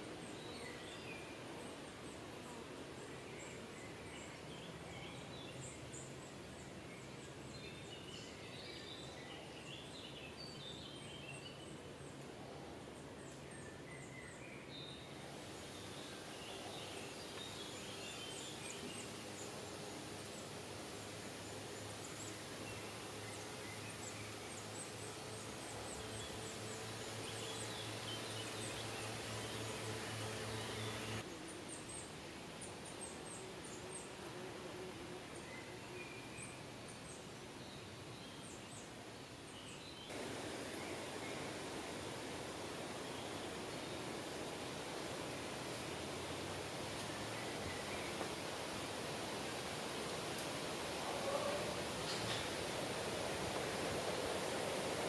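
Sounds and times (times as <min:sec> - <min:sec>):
small birds chirping: 0:13.2 - 0:34.2.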